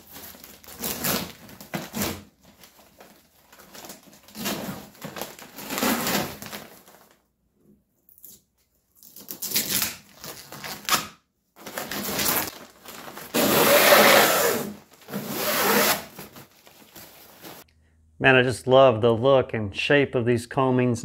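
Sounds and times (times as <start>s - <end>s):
fabric ripping off fiberglass: 9.2s - 17.6s.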